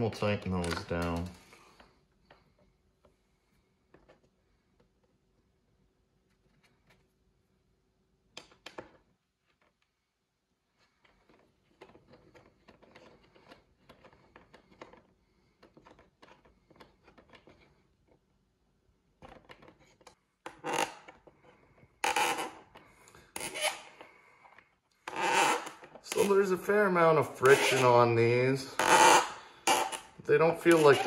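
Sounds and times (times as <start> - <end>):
screw scraping into plastic: 27.4 - 27.9, 28.8 - 31.0.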